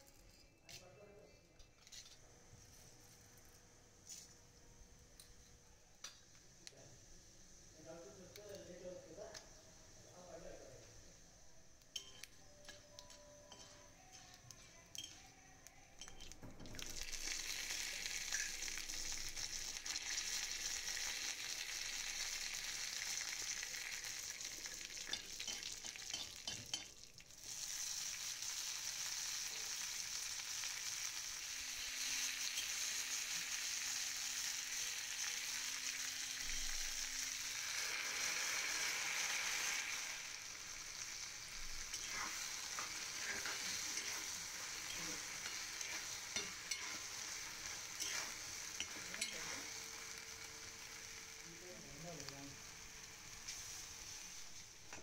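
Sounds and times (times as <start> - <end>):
hot oil sizzling in a pan: 5.1 - 15.2, 15.9 - 55.0
metal spatula scraping a pan: 41.2 - 50.0.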